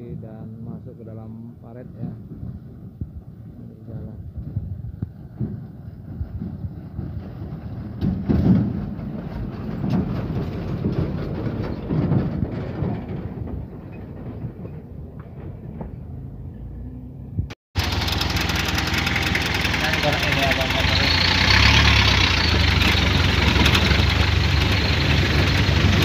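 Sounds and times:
heavy trucks passing: 4.4 - 26.0
diesel engine idling: 17.8 - 26.0.

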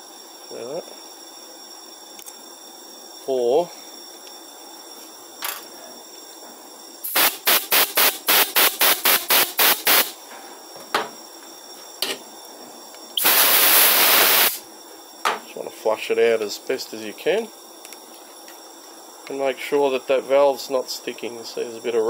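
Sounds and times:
air blow gun hissing puffs: 7.0 - 10.2, 13.2 - 14.6.

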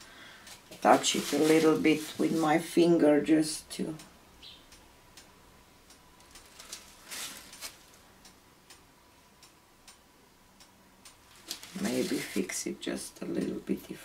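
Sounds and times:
soft rustle: 0.4 - 2.7, 6.4 - 8.0, 11.2 - 12.7.

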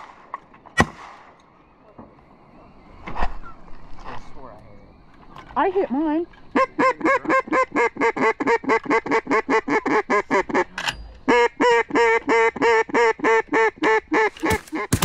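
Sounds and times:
duck call quacks: 6.5 - 15.0.

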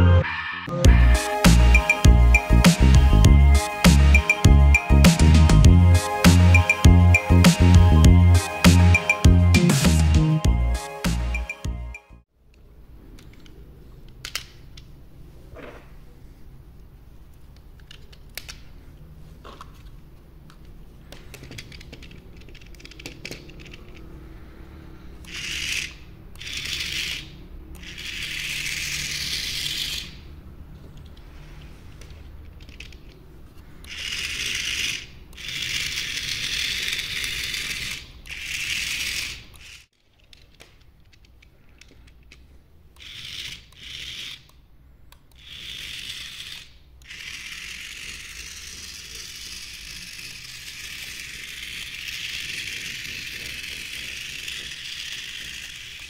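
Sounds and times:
small motors whirring: 25.1 - 30.2, 33.8 - 39.9, 43.0 - 44.5, 45.3 - 56.0.

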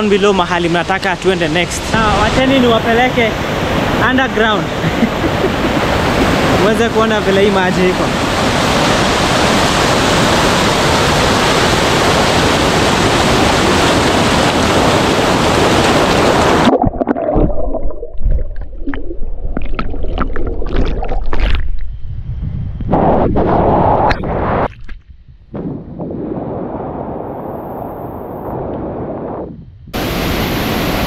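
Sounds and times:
waterfall rushing: 0.6 - 16.7, 30.0 - 31.0
underwater gurgling and pops: 15.3 - 25.2.

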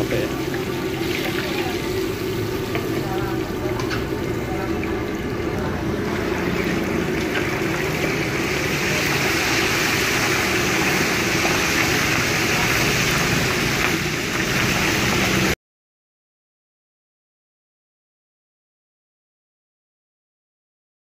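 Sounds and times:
oil bubbling and sizzling: 0.0 - 15.6.

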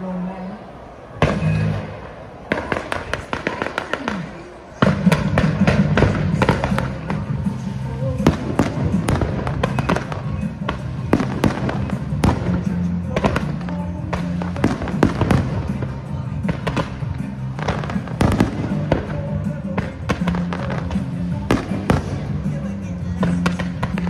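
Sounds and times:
fireworks bangs and crackles: 1.2 - 24.0
loud show music: 3.3 - 24.0.

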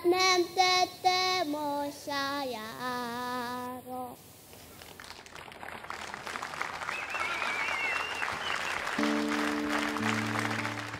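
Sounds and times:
audience applause: 4.6 - 10.9.

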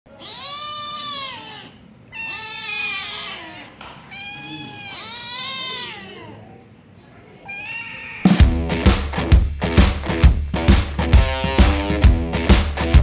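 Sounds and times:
cats meowing: 0.1 - 6.6, 7.3 - 8.4.

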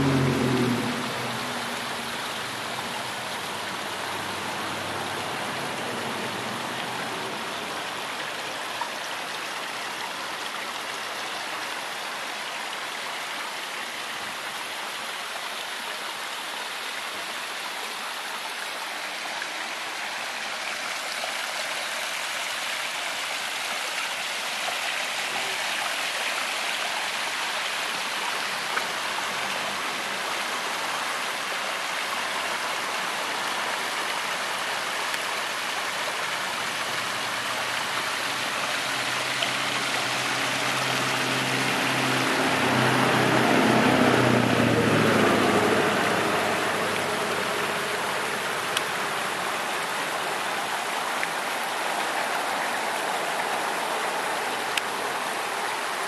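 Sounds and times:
low engine hum: 0.0 - 7.4, 36.8 - 49.9
water running over stones: 0.0 - 56.0.

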